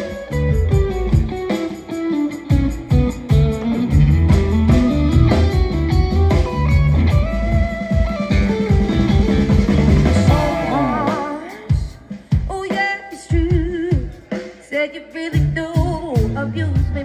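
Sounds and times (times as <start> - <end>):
bass guitar: 0.0 - 12.5, 15.3 - 17.0
drums: 0.0 - 17.0
electric guitar: 0.0 - 17.0.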